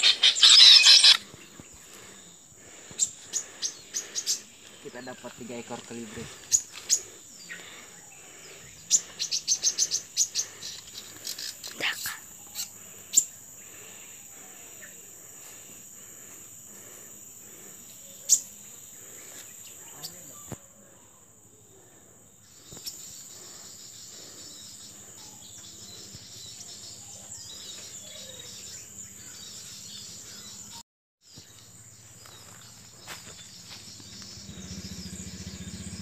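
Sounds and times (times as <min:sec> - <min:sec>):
faint bird chirps: 0:00.0 - 0:02.4, 0:03.0 - 0:15.1, 0:17.8 - 0:36.0
high-pitched insect drone: 0:32.5 - 0:36.0.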